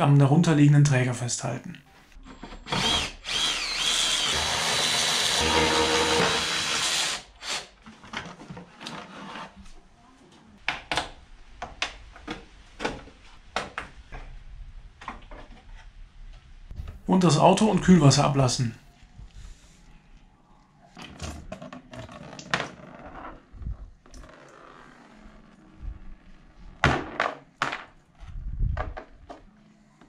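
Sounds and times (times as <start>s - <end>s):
power screwdriver whine: 2.6s - 7.7s.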